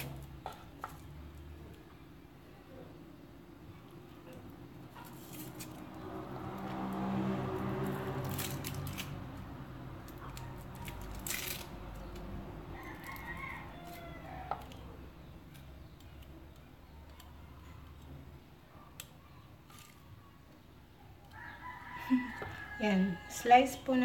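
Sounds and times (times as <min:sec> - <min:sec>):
onion skin crackling: 0:05.0 - 0:18.4.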